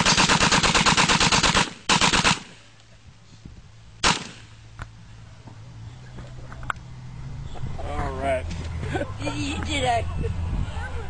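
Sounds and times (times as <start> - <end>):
submachine gun bursts: 0.0 - 2.5
single gunshot: 4.0 - 4.5.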